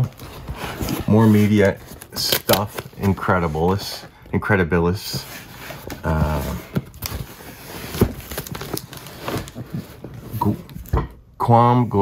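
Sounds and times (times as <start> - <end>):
cardboard box scraping and rustling: 0.0 - 2.0, 5.2 - 10.6.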